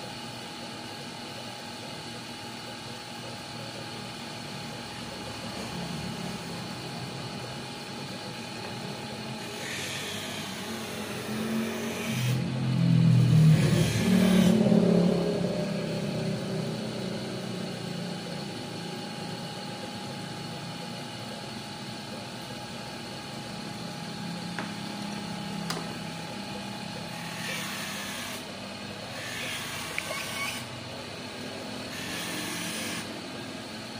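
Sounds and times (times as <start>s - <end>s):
grinding wheel whining: 4.9s - 20.8s, 22.6s - 33.2s.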